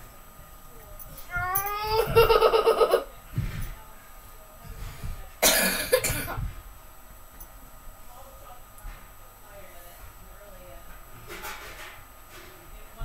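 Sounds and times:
dog whining: 1.2 - 3.0
harsh cough: 5.4 - 6.4.

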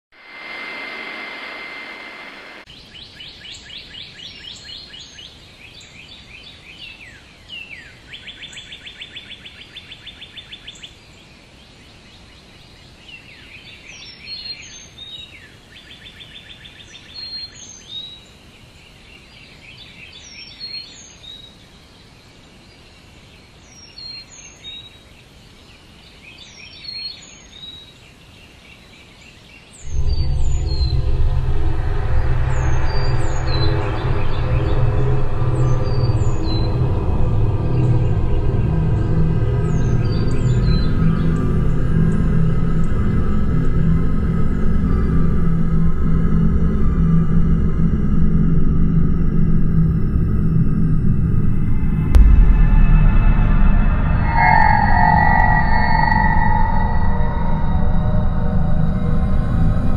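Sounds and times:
hiss with high tone: 0.1 - 2.7, 50.8 - 59.9
birdsong with trills: 29.6 - 45.3, 52.1 - 59.9.

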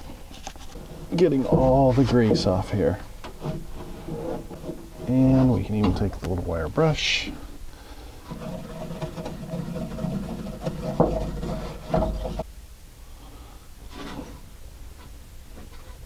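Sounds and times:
wire brush scrubbing metal: 8.2 - 12.4.

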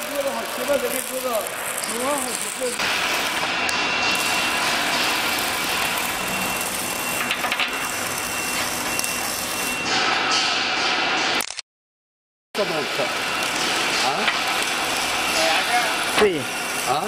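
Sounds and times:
power tool rush with whine: 0.0 - 9.9, 12.6 - 17.0.

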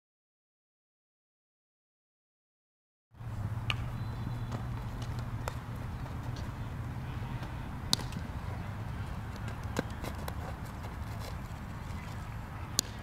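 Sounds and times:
bat striking ball: 3.4 - 10.6, 12.7 - 13.0
ball smacking into leather glove: 7.4 - 8.2.

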